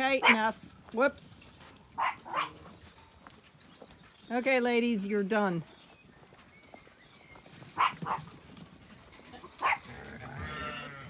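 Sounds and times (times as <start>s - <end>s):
dog barking: 0.2s - 0.5s, 2.0s - 2.6s, 7.8s - 8.3s, 9.6s - 9.9s
sheep bleating: 9.9s - 11.0s.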